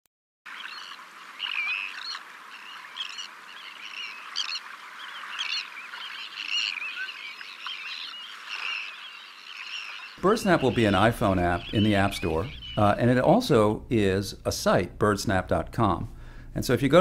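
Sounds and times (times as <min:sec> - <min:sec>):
songbirds chirping and warbling: 0:00.5 - 0:14.5.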